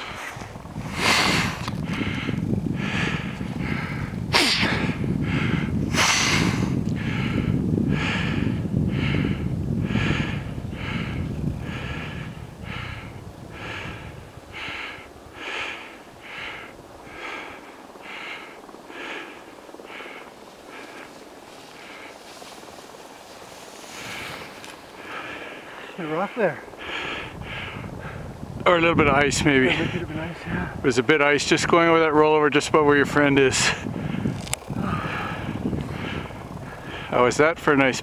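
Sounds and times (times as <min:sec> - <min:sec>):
rapid heavy breathing: 0:00.0 - 0:28.4, 0:33.0 - 0:37.6
wind rumbling on microphone: 0:00.0 - 0:38.0.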